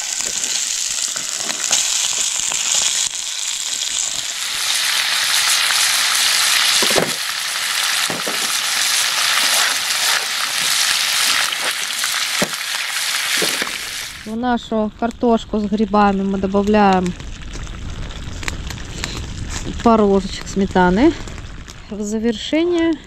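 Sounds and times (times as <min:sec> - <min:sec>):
fat popping: 0:00.0 - 0:14.4
sausages sizzling in a skillet: 0:00.0 - 0:14.4.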